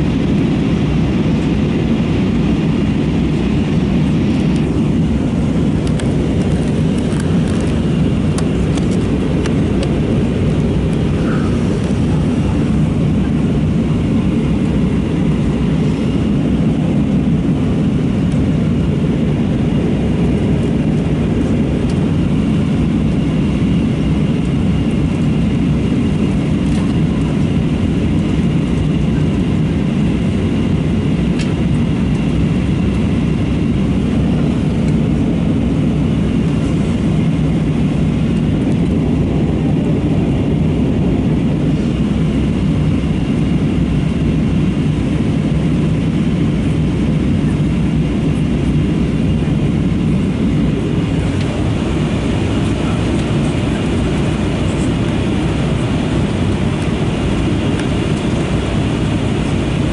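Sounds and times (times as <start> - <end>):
airplane cabin drone: 0.0 - 59.9
faint clicks in cabin: 31.4 - 32.2.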